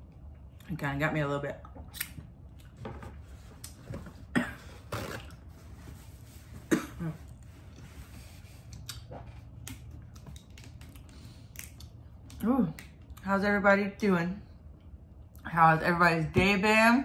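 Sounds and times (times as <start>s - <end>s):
woman clearing her throat: 4.3s - 4.8s, 6.7s - 7.3s
woman coughing: 4.3s - 4.8s, 6.7s - 7.3s.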